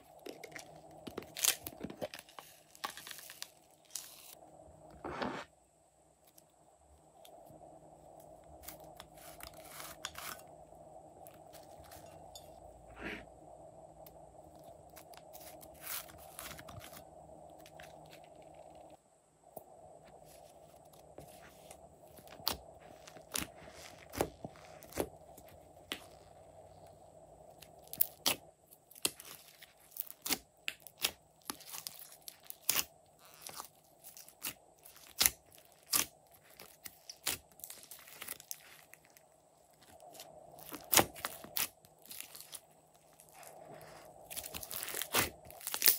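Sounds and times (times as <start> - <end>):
slime crackling and popping: 27.9 - 39.2, 40.1 - 43.5, 44.2 - 45.9.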